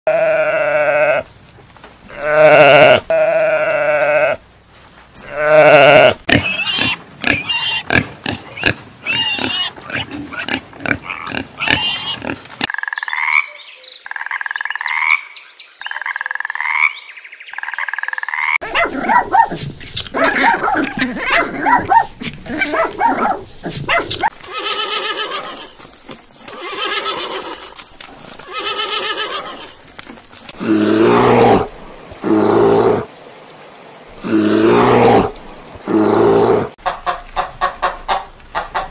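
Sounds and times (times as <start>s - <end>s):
sheep bleating: 0.1s - 1.2s, 2.1s - 4.4s
pigs grunting and squealing: 5.2s - 12.5s, 18.3s - 25.7s, 34.2s - 36.8s
dogs barking: 18.6s - 24.4s.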